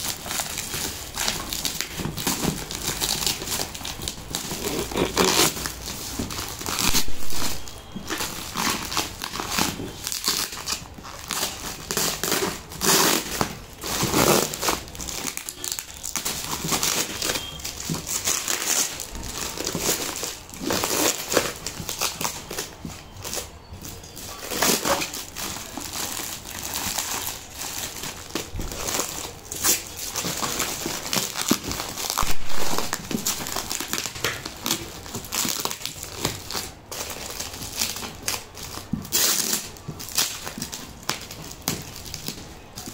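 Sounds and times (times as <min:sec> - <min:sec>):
plastic wrapping crinkling: 0:00.0 - 0:42.9.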